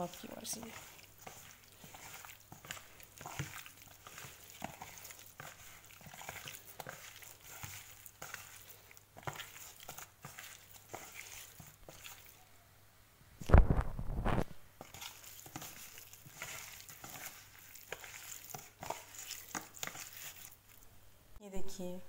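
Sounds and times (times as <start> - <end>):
hand squelching raw chicken: 0.0 - 12.5, 14.8 - 20.9.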